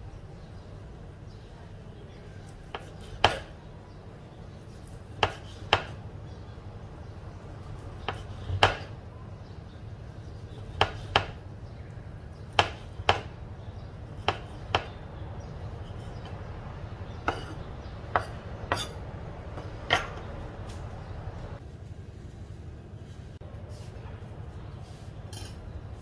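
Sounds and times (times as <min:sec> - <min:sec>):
knife chopping on wooden block: 0:02.6 - 0:03.6, 0:05.1 - 0:06.0, 0:08.0 - 0:09.0, 0:10.6 - 0:11.4, 0:12.5 - 0:13.4, 0:14.1 - 0:15.0, 0:17.2 - 0:19.0.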